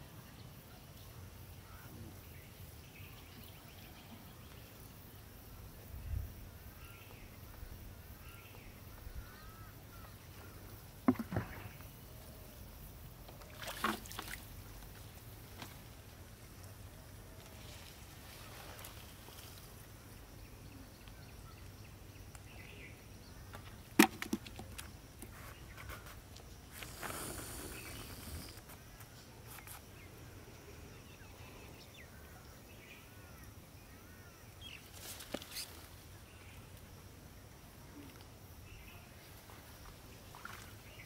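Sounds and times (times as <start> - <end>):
rustling through leafy plants: 17.4 - 19.8.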